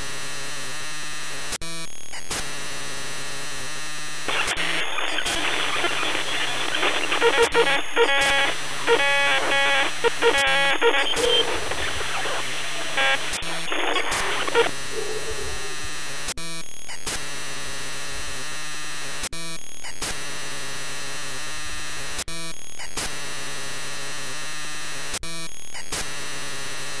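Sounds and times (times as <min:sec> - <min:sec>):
tv static hiss: 0:04.2 - 0:16.0
garbled muffled pitched sounds: 0:04.3 - 0:16.1.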